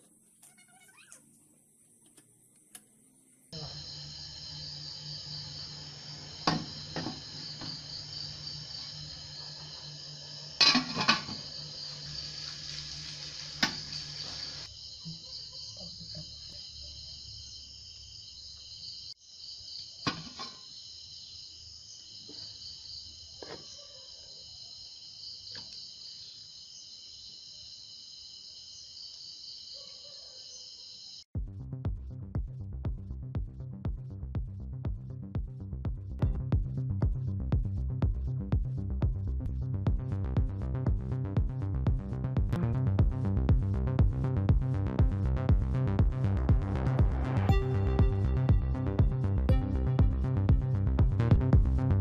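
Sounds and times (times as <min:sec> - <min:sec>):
crickets trilling: 0:00.1 - 0:31.3
low hum: 0:03.5 - 0:14.6, 0:31.4 - 0:52.0
metal pot and lid clinking: 0:10.6 - 0:11.4, 0:20.1 - 0:20.6.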